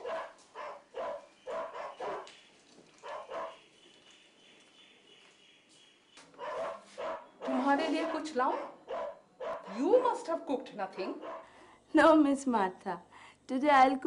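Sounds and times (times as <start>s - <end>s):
dog barking: 0.0s - 2.3s, 3.0s - 3.6s, 6.4s - 10.2s, 11.0s - 11.5s.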